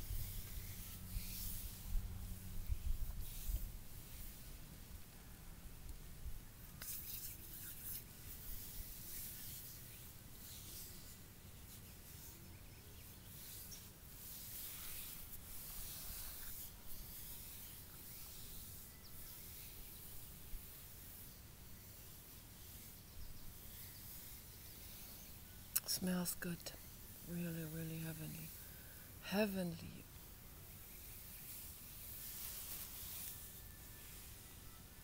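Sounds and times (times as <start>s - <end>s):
hand rubbing oiled skin: 0.0s - 4.6s, 6.6s - 29.0s, 30.7s - 34.6s
low steady rumble: 0.0s - 6.8s.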